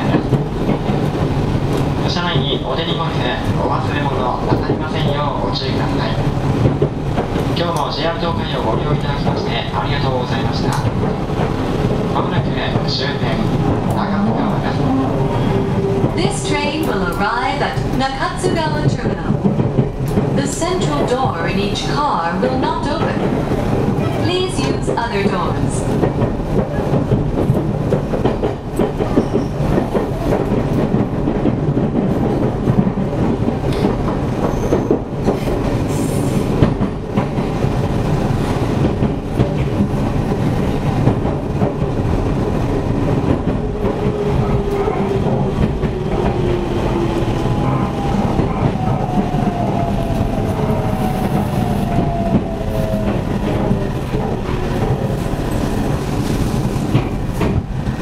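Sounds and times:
train running rumble: 0.0 - 58.0.

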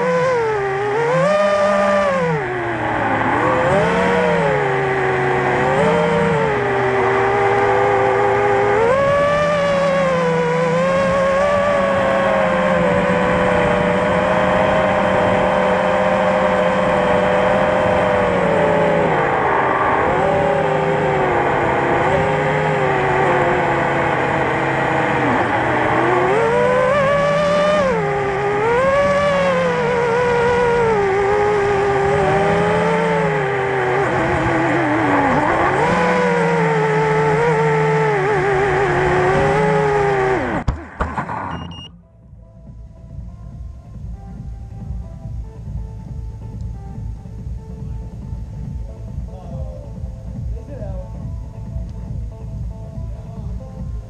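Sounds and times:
drone motors whining: 0.0 - 42.2.

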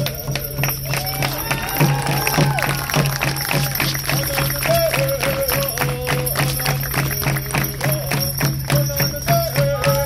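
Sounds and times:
steady drumbeat: 0.0 - 10.0.

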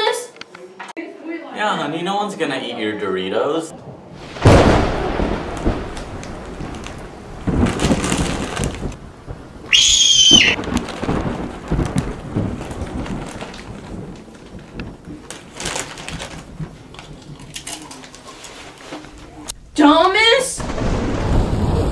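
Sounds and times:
thunder: 3.7 - 16.9, 20.6 - 21.9
steady rain: 3.8 - 19.8, 20.6 - 21.9
short high whistle-like tone: 9.7 - 10.6.

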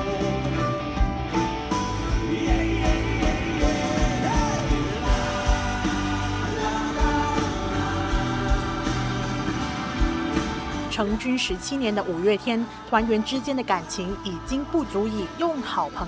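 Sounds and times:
rock band playing: 0.0 - 11.2
man singing: 2.0 - 10.0
drum beat: 2.2 - 10.8.

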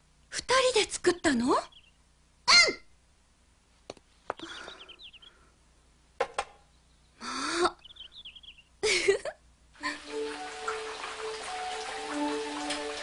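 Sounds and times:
high twittering chirps: 1.1 - 2.0, 4.4 - 5.4, 7.8 - 8.7.

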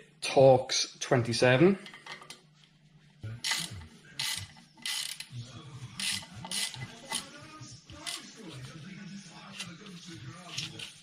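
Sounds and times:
ratchet clicking: 3.5 - 5.3, 6.0 - 7.3.

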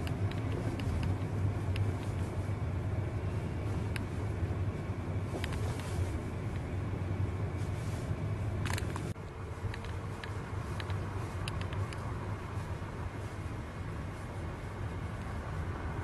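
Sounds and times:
light ticks: 0.0 - 2.3, 8.6 - 12.1
car engine and tyre rumble: 0.0 - 16.0.

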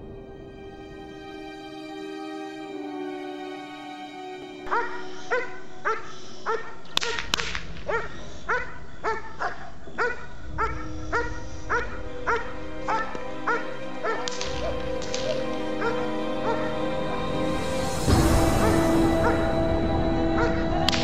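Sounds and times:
background music: 0.0 - 21.0
dog barking: 4.7 - 16.8, 18.5 - 19.6, 20.3 - 21.0
sharp cracks: 6.8 - 8.2, 14.1 - 15.7.

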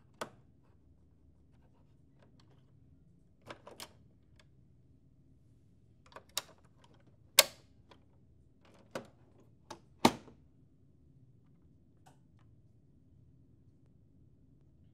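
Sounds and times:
printer cover plastic clicks and snaps: 6.1 - 6.6.

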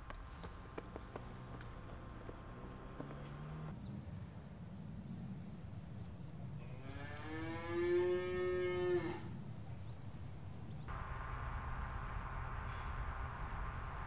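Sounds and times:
cow mooing: 6.7 - 9.3.

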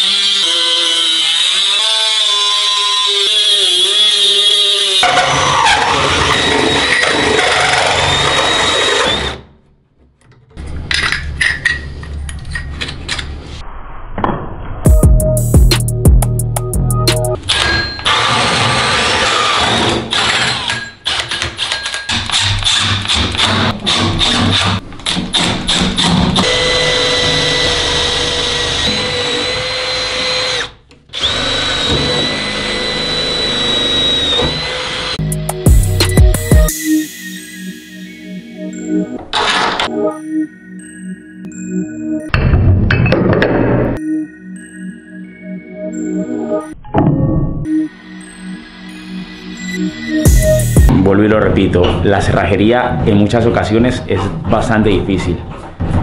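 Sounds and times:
drill cutting through wood: 0.0 - 9.5, 17.4 - 35.2.

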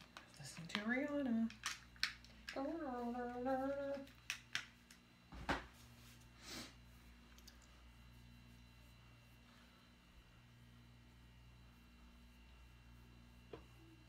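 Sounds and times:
faint low hum: 0.0 - 14.0
woman humming: 2.6 - 4.1.

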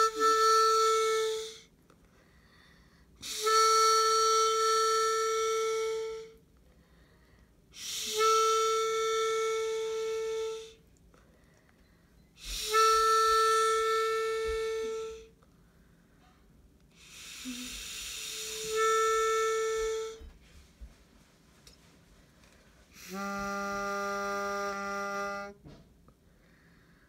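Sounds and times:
harmonica long held note: 0.0 - 1.7, 3.2 - 6.4, 7.7 - 10.8, 12.3 - 15.4, 16.9 - 21.0, 22.9 - 25.8.

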